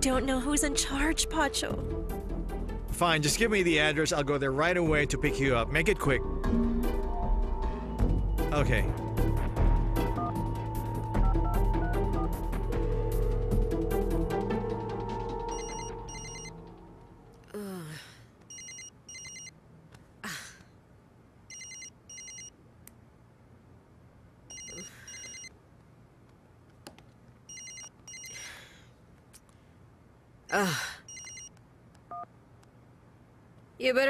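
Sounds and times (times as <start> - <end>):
telephone ringing: 15.5 - 16.6, 18.5 - 19.5, 21.5 - 22.5, 24.5 - 25.5, 27.5 - 28.4, 31.1 - 31.5
woman groaning and sighing: 17.5 - 18.3, 20.2 - 20.7, 30.5 - 31.1.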